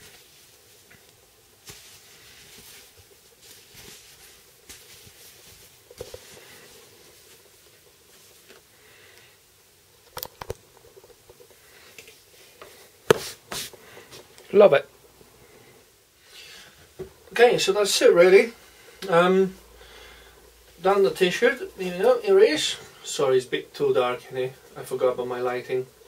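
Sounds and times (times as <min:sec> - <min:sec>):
fabric rustling: 0:00.0 - 0:08.8.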